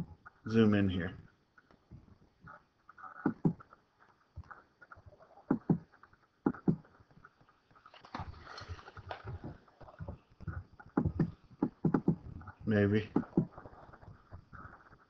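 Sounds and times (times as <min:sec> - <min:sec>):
soft rustle: 0:01.0 - 0:11.6.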